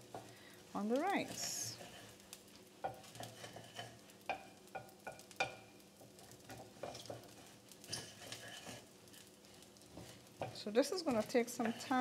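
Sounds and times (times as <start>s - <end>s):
faint sizzle: 0.0s - 12.0s
spatula scraping pot: 1.1s - 2.2s, 2.8s - 4.4s, 6.5s - 12.0s.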